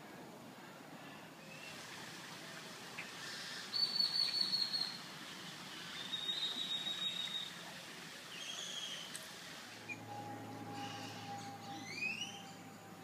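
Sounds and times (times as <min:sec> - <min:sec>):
high whistled notes: 0:09.8 - 0:12.7.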